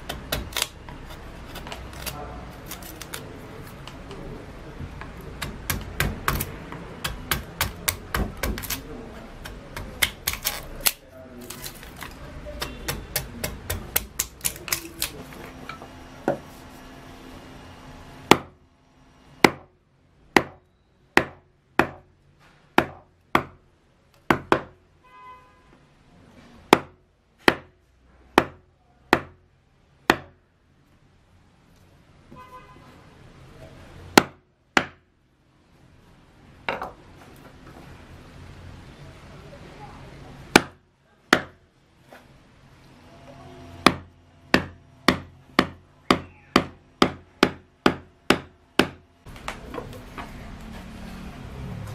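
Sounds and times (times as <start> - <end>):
mallet knocking carving gouge: 0.0 - 3.2, 4.8 - 15.2, 18.2 - 18.6, 19.4 - 22.1, 22.8 - 23.6, 24.2 - 24.8, 26.7 - 27.8, 28.4 - 29.4, 30.1 - 30.4, 34.1 - 35.0, 40.5 - 41.6, 43.8 - 49.0.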